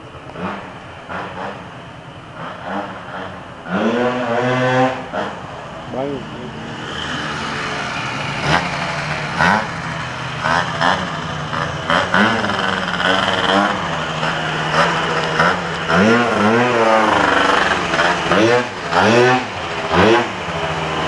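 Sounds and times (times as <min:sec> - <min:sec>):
scooter engine revving: 0:00.3 - 0:21.0
scooter engine idling: 0:07.3 - 0:21.0.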